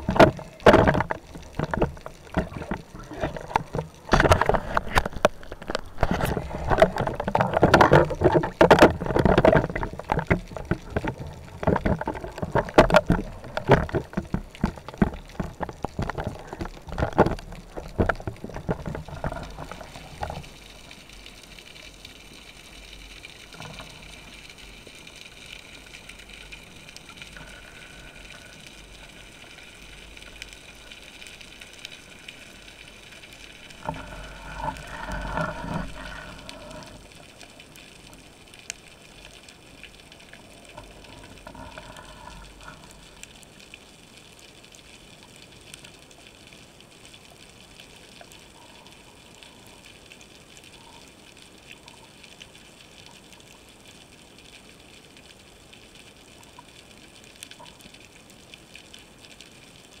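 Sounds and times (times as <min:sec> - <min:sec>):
gush of moving water: 0:00.0 - 1:00.0
faint underwater hiss: 0:17.6 - 1:00.0.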